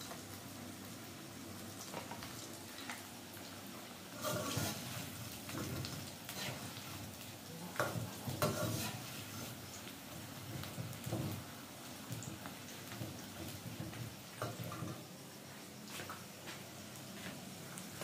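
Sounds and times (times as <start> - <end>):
food sizzling in hot oil: 0.0 - 18.0
metal spatula scraping wok: 4.1 - 5.7, 6.3 - 6.8, 7.8 - 9.5.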